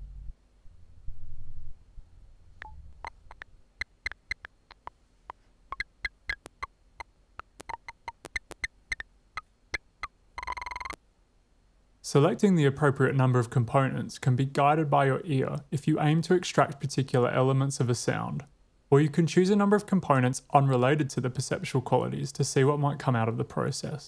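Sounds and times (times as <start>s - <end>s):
low rumble: 0.0s - 3.0s
sharp ringing clicks: 10.4s - 11.0s.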